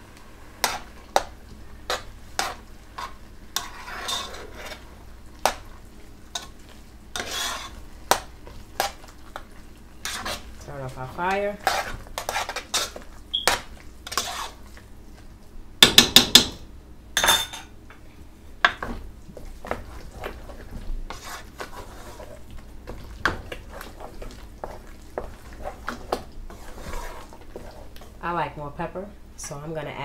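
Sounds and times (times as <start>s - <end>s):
utensils scraping a cooking pot: 1.9s - 5.6s, 6.3s - 9.1s, 10.0s - 10.6s, 11.2s - 14.7s, 19.6s - 28.1s.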